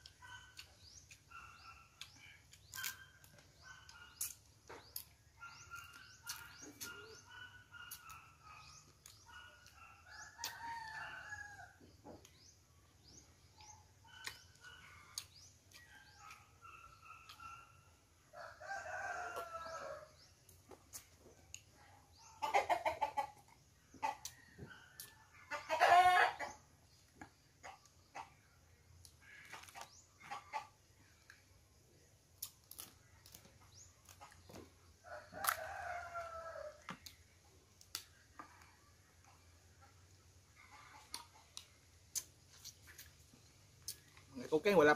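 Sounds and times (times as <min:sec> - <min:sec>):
birds chirping: 0:00.0 - 0:39.9
rooster crowing: 0:10.0 - 0:11.8, 0:18.4 - 0:20.1, 0:35.1 - 0:36.8.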